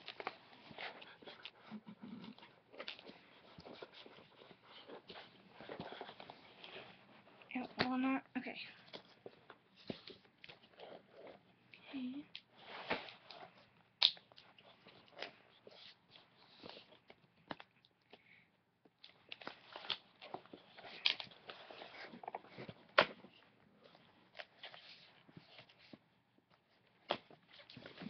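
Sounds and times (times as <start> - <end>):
sharp clicks and snaps: 14.0 - 14.4.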